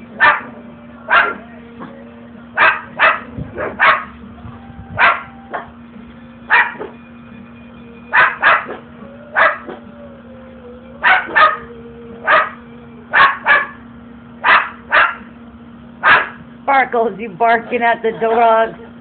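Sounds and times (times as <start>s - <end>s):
cockatoo imitating dog barks: 0.2s - 0.5s, 1.1s - 1.4s, 2.6s - 4.1s, 5.0s - 5.7s, 6.5s - 6.9s, 8.1s - 9.8s, 11.0s - 13.8s, 14.4s - 15.3s, 16.0s - 16.4s.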